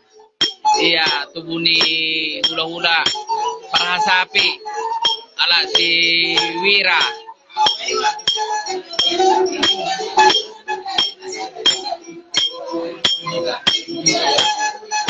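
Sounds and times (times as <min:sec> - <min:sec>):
plucked lutes: 0:00.4 - 0:10.4
clinking beat on glass or metal: 0:00.4 - 0:14.6
bamboo flute melody: 0:00.4 - 0:15.0.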